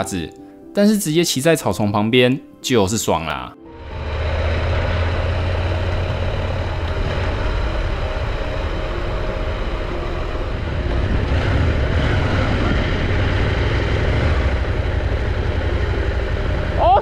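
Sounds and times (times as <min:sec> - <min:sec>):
motorcycle engine running: 0:03.7 - 0:17.0
wind rushing over microphone: 0:03.9 - 0:15.7.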